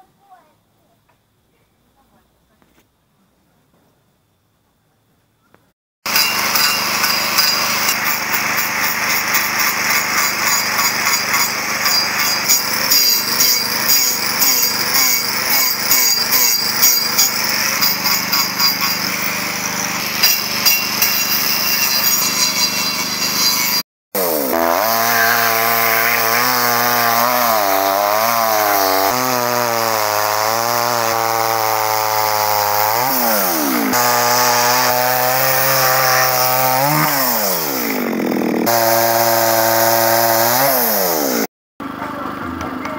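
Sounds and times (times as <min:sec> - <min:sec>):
chainsaw cutting wood: 0:06.0 - 0:41.5
power tool sanding wood: 0:06.1 - 0:41.5.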